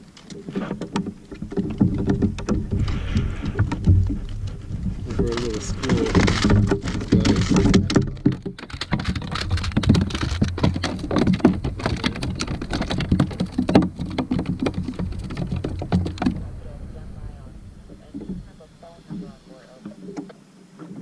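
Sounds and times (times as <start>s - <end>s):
water splashing against kayak hull: 0.0s - 21.0s
low rumble: 11.3s - 20.2s.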